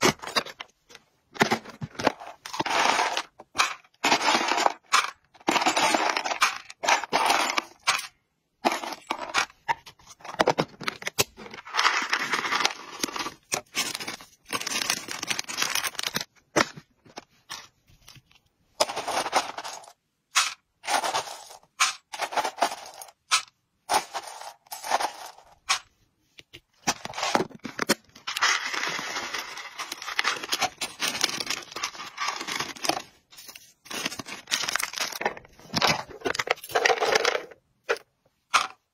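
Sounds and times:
metal scoop crunching dry treats: 1.9 - 9.5, 11.2 - 16.3, 18.8 - 25.9, 26.9 - 37.5.

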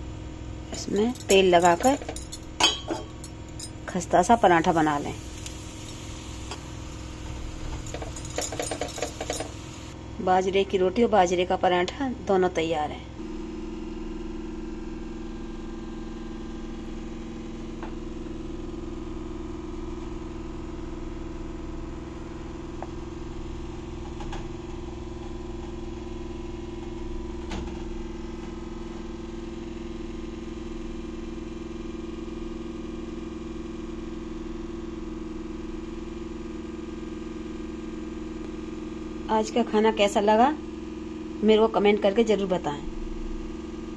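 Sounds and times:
motor humming: 0.7 - 10.0.

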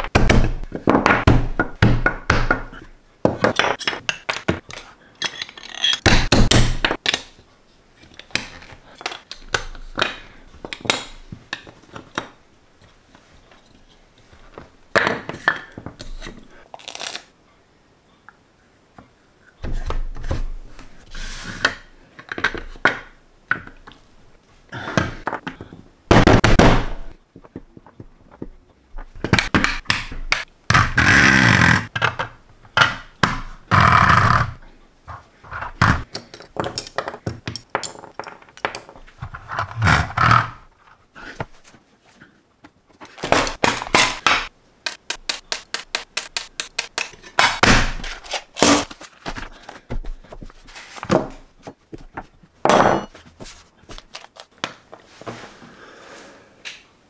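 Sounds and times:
plastic bricks thunking and clicking: 0.0 - 7.4, 25.0 - 31.0, 31.8 - 40.5.

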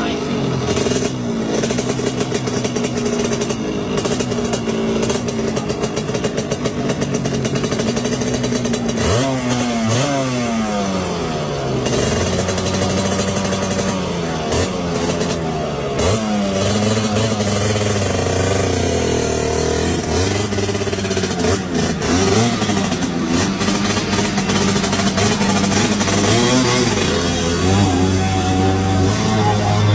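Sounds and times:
scooter engine revving: 0.0 - 29.9.

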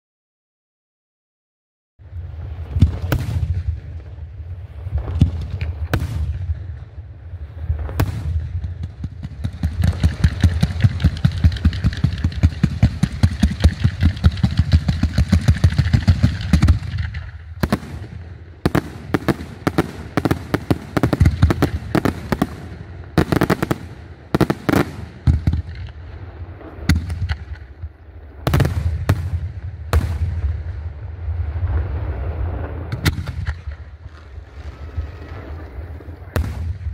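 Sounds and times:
steady low rumble: 2.0 - 36.9
fireworks bangs: 2.2 - 36.9
fireworks shell bursts: 8.8 - 17.4.

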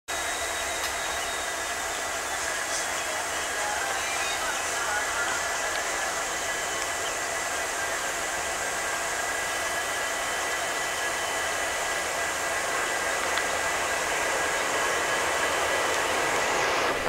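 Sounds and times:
diesel locomotive engine rush: 0.1 - 17.0
faint high whining: 0.1 - 17.0.

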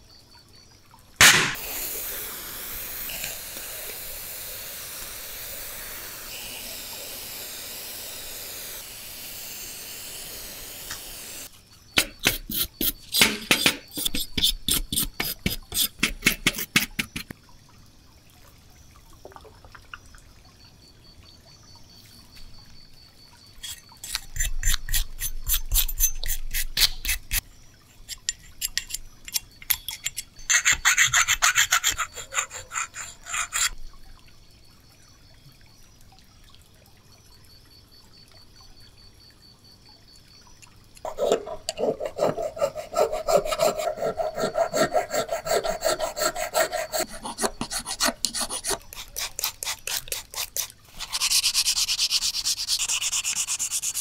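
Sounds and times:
aerosol spray hissing: 1.2 - 14.5, 44.5 - 54.0
rapid rubbing on metal parts: 2.8 - 16.8, 28.1 - 33.8, 41.0 - 54.0.

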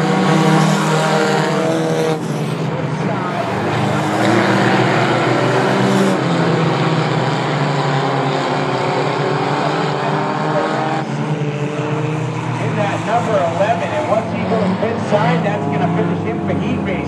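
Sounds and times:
stock car engines racing: 0.0 - 17.0.

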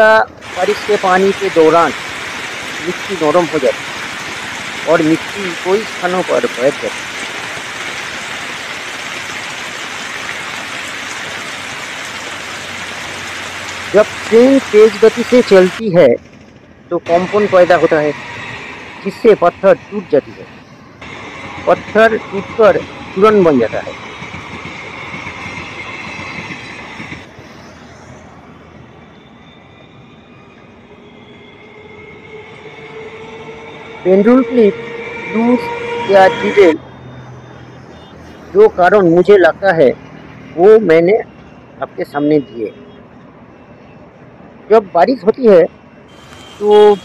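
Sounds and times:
heavy rain pouring: 0.0 - 15.8
train coaches rolling past: 0.0 - 39.0
distant train approaching: 0.0 - 40.6, 45.8 - 47.0
high whine: 17.0 - 38.1
steady low tone: 27.9 - 36.8.

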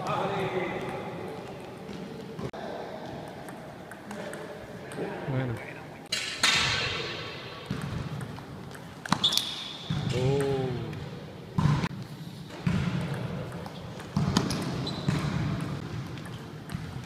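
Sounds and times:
short squeak: 9.2 - 9.9, 14.5 - 15.1.

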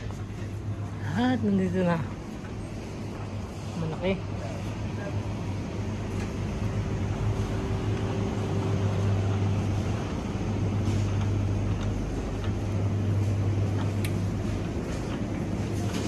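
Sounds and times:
low hum of ventilation machinery: 0.0 - 16.0
faint clicks and rattles: 6.1 - 16.0.

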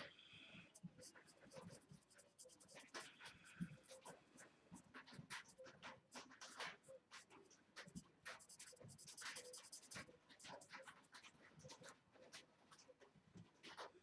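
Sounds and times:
marker scratching on cardstock: 1.2 - 4.1, 4.8 - 12.0.

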